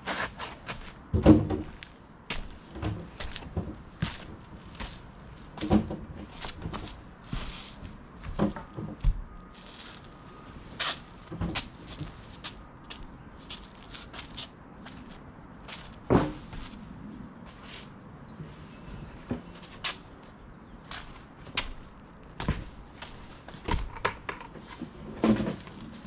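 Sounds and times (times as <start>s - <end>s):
footsteps on roof: 0.0s - 10.2s, 10.8s - 16.8s, 19.2s - 26.0s
knocks and thuds on roof: 1.1s - 1.8s.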